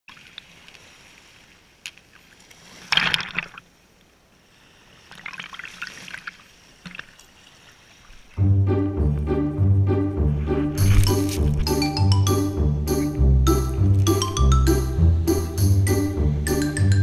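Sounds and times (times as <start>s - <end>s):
small waves splashing on sand: 0.1s - 8.4s
music: 8.4s - 17.0s.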